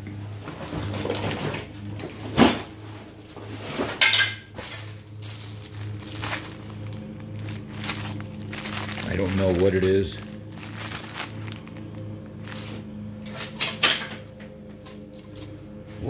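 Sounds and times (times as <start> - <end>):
low steady hum: 0.0 - 16.0
metal parts clinking: 4.0 - 5.0.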